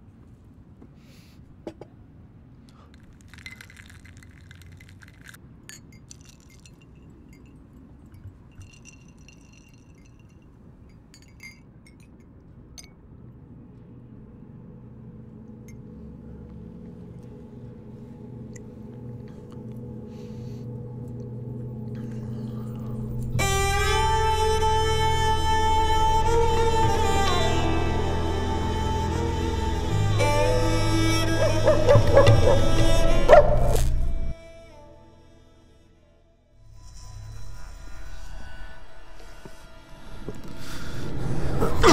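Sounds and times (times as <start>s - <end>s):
faint low hum: 0.0s - 41.9s
glass clinking: 3.2s - 13.0s
low droning tone: 12.8s - 41.9s.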